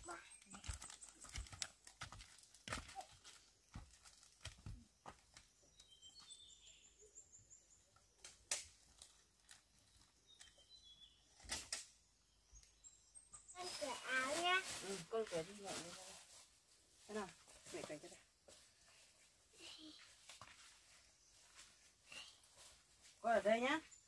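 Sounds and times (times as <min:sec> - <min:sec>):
faint high chirps: 0:19.5 - 0:22.7.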